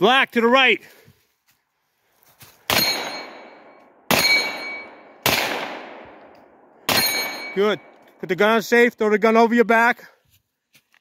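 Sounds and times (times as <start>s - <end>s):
gunshots with echo: 2.7s - 8.0s.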